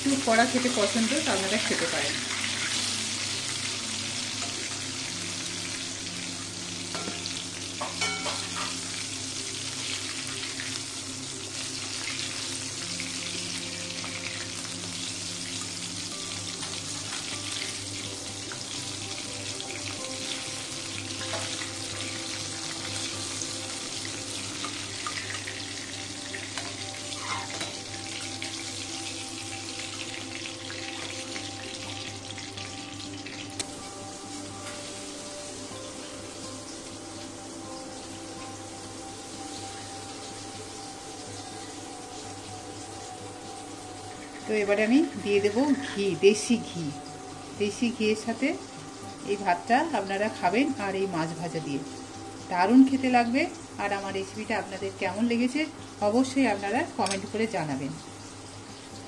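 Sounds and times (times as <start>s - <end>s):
fish sizzling in hot oil: 0.0s - 59.0s
metal spatula scraping pan: 26.6s - 27.8s.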